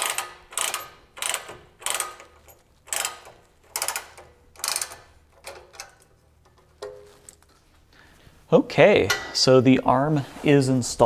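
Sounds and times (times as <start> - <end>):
ratchet wrench clicking: 0.0 - 6.0.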